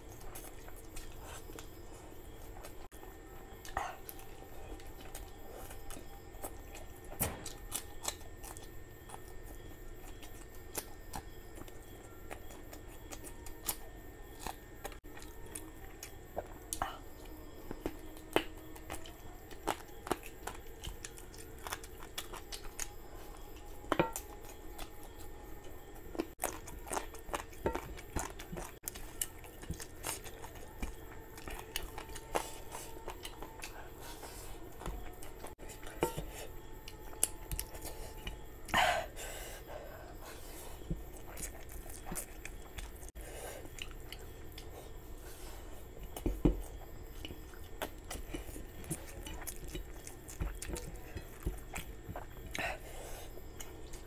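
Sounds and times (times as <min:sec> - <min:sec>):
close chewing: 0:00.0 - 0:54.0.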